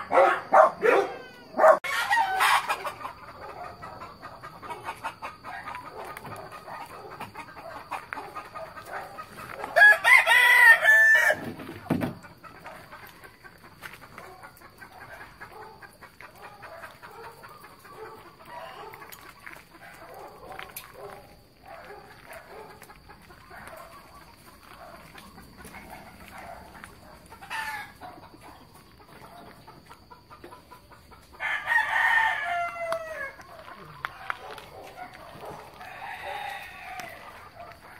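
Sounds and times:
rooster crowing: 0.0 - 3.9, 8.6 - 11.5, 27.4 - 28.1, 31.4 - 34.6, 35.4 - 37.8
chickens clucking: 0.0 - 9.8, 11.4 - 37.9.

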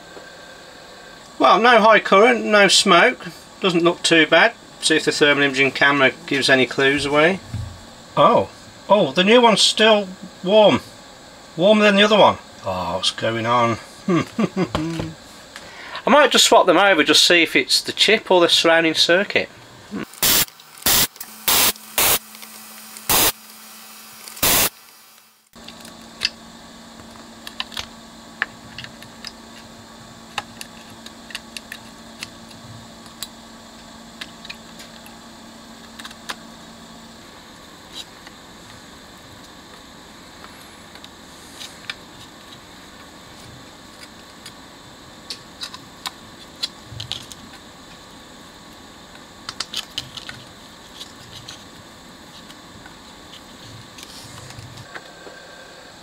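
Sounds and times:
low steady hum: 0.0 - 18.0
desoldering gun hissing: 20.0 - 25.5.

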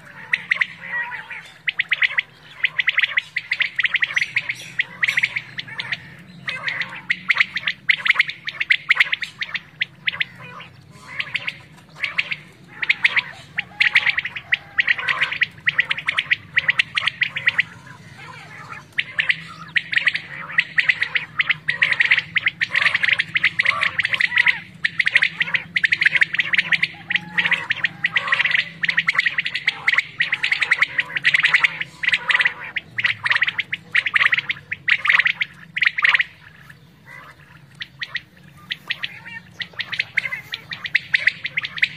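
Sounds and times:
quail chirping chorus: 0.0 - 41.9.

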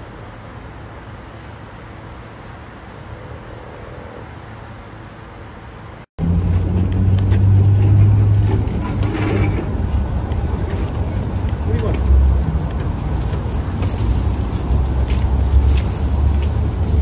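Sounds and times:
outdoor background noise: 0.0 - 17.0
stroller rumbling over concrete: 6.2 - 17.0.

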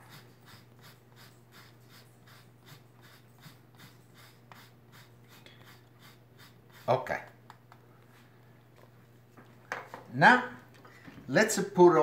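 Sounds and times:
cheese grater scraping: 0.0 - 7.2
low steady hum: 0.0 - 12.0.

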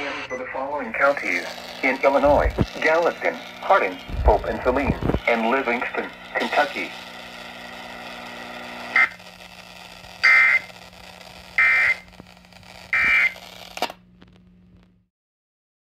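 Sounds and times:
harsh digital squawks: 0.0 - 5.6, 8.9 - 9.4, 10.1 - 12.1, 12.8 - 13.9
radio hum and hiss: 0.0 - 15.0.

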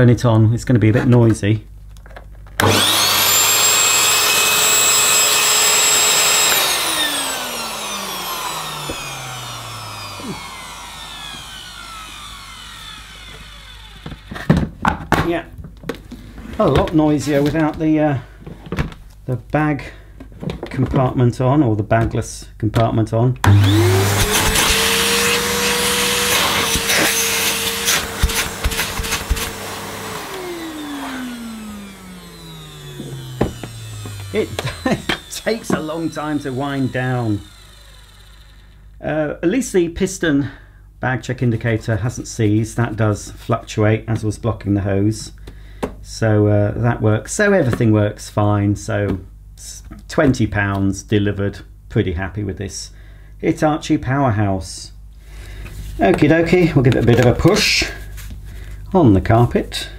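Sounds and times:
vacuum cleaner motor winding down: 2.6 - 14.6, 23.4 - 39.0.

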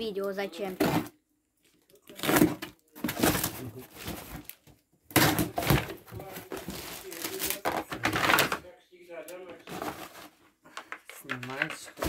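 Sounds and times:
cardboard box and paper rustling: 2.1 - 4.5, 5.2 - 8.6, 9.6 - 10.4.

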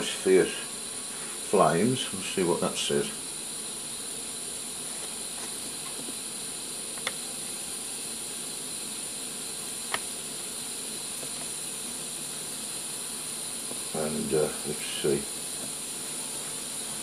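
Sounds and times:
gas burner hissing: 0.0 - 17.0.

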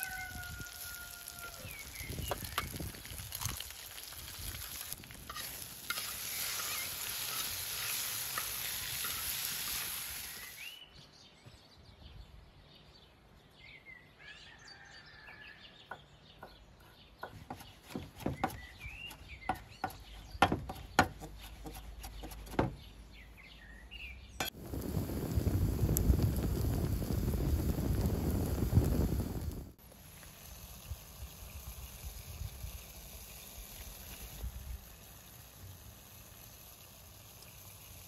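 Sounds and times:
food sizzling in a pan: 0.0 - 10.8, 24.4 - 38.0
bird chirps: 10.3 - 24.4
knife knocking on wooden board: 19.5 - 22.8.

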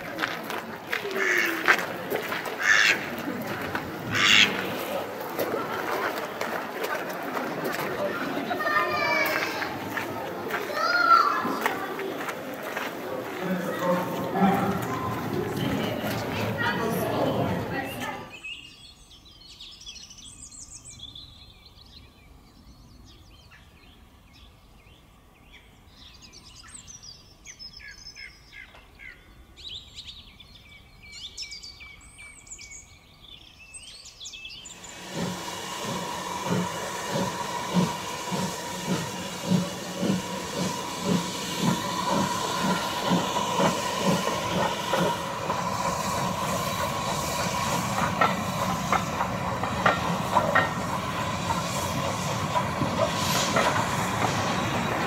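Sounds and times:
steam locomotive chuffing: 0.0 - 18.3, 34.6 - 55.0
steam hissing: 34.6 - 55.0.

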